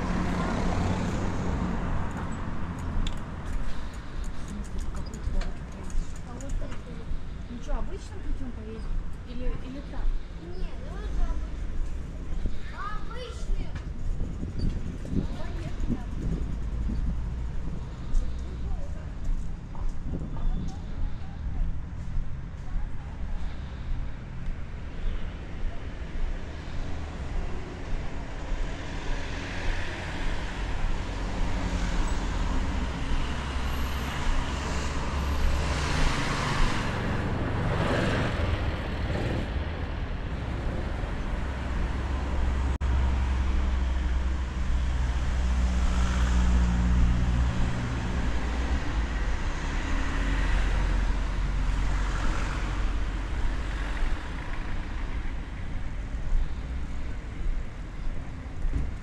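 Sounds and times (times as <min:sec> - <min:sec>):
vehicle passing loudly: 0:00.0 - 0:03.0, 0:26.5 - 0:55.9
street traffic passing: 0:00.0 - 0:59.0.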